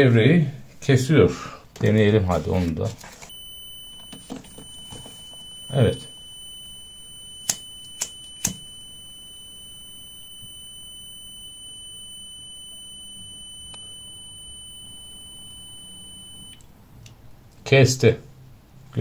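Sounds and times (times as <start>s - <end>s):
multimeter high beep: 3.3s - 16.7s.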